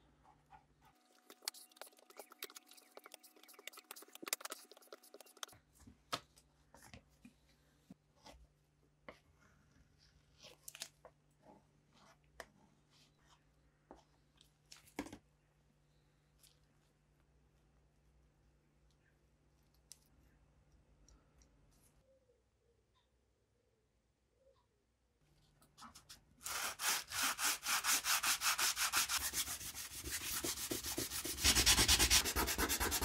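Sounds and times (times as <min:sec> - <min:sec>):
spreader scraping filler paste: 0:01.2 - 0:05.6.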